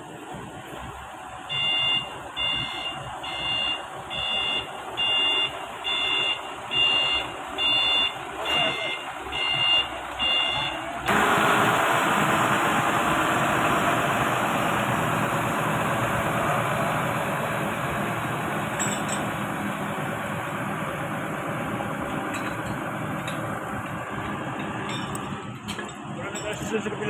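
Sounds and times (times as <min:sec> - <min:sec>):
forklift engine running: 0:00.1 - 0:27.0
forklift reversing alarm beeps: 0:01.5 - 0:10.8.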